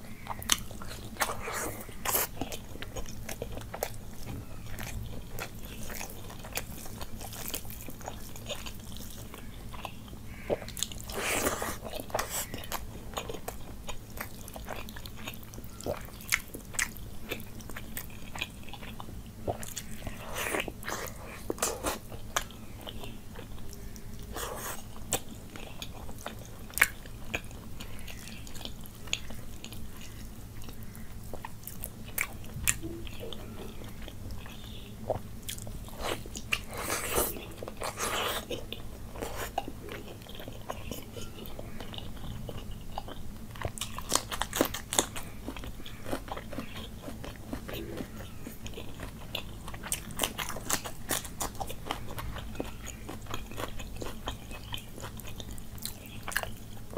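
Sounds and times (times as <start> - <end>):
person chewing food: 0.0 - 56.9
food crunch: 0.4 - 56.9.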